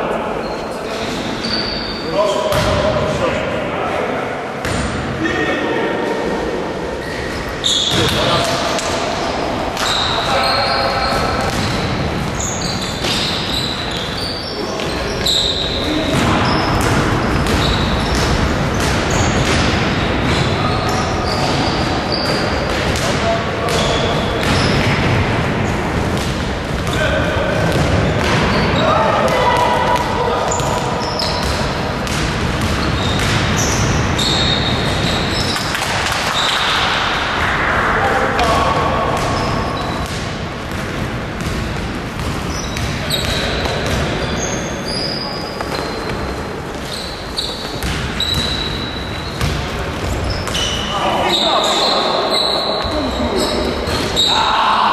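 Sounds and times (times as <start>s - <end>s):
sneakers squeaking: 0.3s - 3.0s, 4.6s - 5.1s, 6.8s - 37.6s, 38.4s - 54.9s
basketball bouncing: 2.5s - 2.8s, 11.4s - 12.4s, 16.1s - 27.0s, 30.0s - 36.8s, 38.4s - 44.3s, 47.7s - 48.6s, 49.3s - 50.7s.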